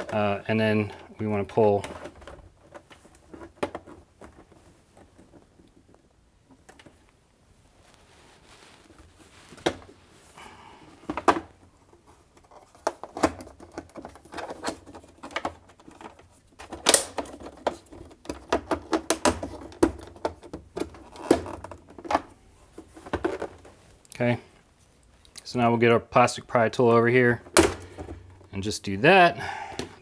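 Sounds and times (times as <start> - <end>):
plastic panels clicking and snapping: 12.4 - 22.3, 27.4 - 28.2.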